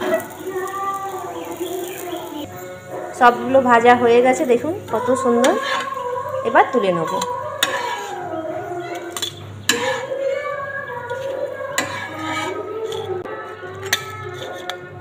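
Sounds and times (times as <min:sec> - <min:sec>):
spatula scraping pan: 0:04.3 - 0:15.0.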